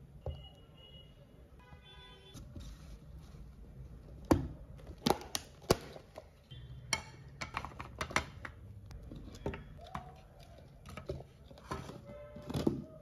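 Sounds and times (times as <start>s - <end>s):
plastic jars clicking on glass: 6.9s - 12.9s.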